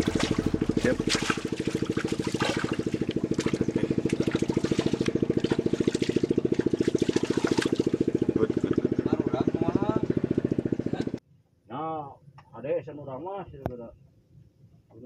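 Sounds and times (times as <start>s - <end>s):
small engine running: 0.0s - 11.2s
water splashing: 0.0s - 11.2s.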